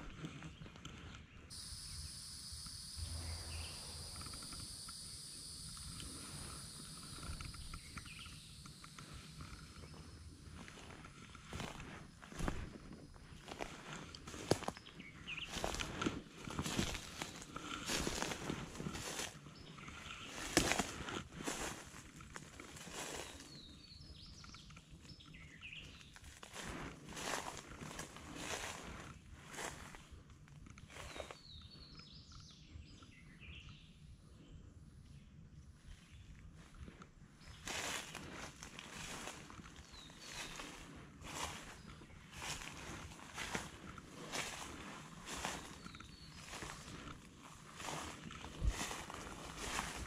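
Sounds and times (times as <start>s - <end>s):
footsteps outdoors: 0.0s - 31.9s, 36.5s - 50.0s
faint bird chirps: 0.4s - 11.7s, 30.8s - 36.8s, 37.4s - 50.0s
low rumble: 1.5s - 11.8s
high-pitched insect chorus: 1.5s - 14.8s, 15.4s - 16.0s, 16.6s - 22.0s, 37.6s - 47.1s, 47.7s - 50.0s.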